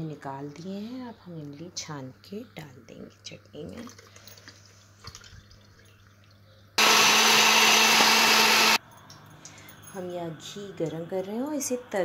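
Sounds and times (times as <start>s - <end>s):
mixer grinder motor running: 6.8s - 8.8s.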